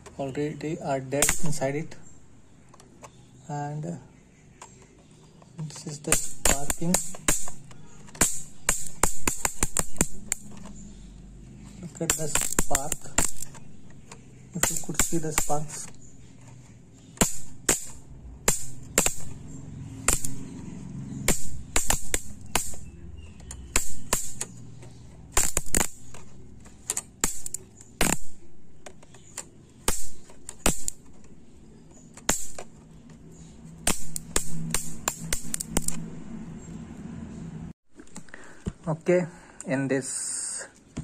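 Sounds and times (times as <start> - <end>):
electric sparks snapping: 1.2 - 1.8, 6.0 - 10.6, 12.0 - 13.6, 14.5 - 15.9, 17.2 - 19.4, 20.0 - 20.5, 21.2 - 22.9, 23.7 - 24.5, 25.3 - 26.2, 26.9 - 28.4, 29.8 - 31.1, 32.2 - 32.6, 33.8 - 36.0.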